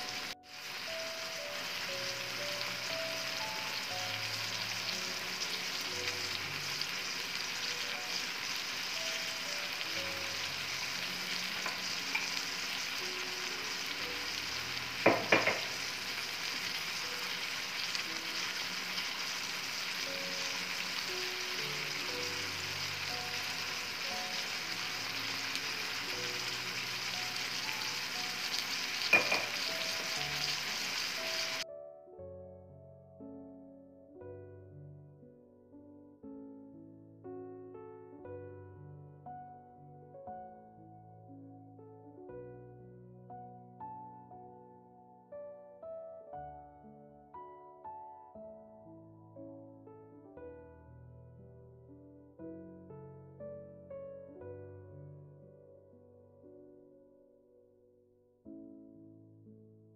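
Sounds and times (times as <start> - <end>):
food sizzling in a pan: 0.0 - 31.6.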